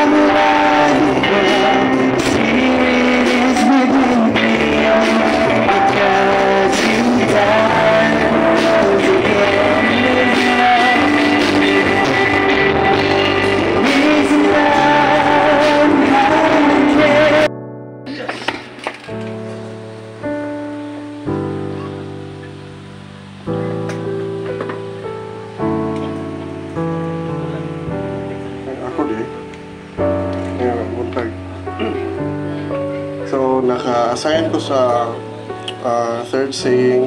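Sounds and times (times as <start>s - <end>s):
live band playing worship song: 0.0s - 17.5s
person singing: 0.0s - 17.5s, 30.4s - 37.0s.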